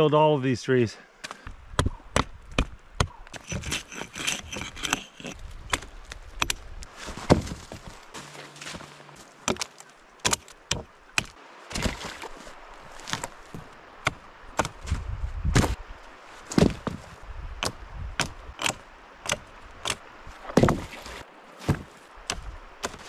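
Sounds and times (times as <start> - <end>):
hatchet striking log: 1.2 - 6.6, 7.2 - 7.6, 9.4 - 12.1, 13.1 - 14.9, 17.6 - 20.9, 21.6 - 23.0
wooden poles knocking: 1.8 - 8.0, 9.4 - 12.2.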